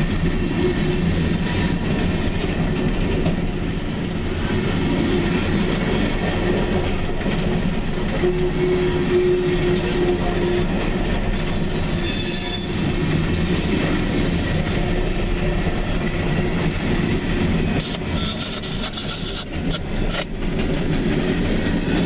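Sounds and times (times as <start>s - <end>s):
train wheels rumbling on rails: 0.0s - 22.0s.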